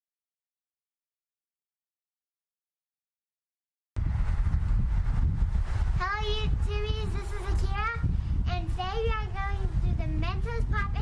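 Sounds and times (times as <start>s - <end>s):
wind buffeting microphone: 4.0s - 11.0s.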